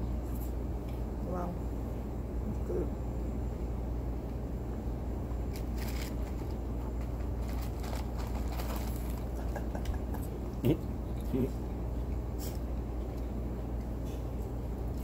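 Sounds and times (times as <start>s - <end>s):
crackles of food being eaten: 5.4s - 15.0s.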